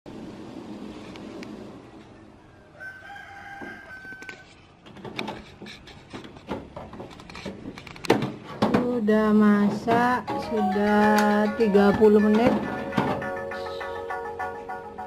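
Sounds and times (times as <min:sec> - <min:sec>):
rooster crowing: 0:02.5 - 0:04.6.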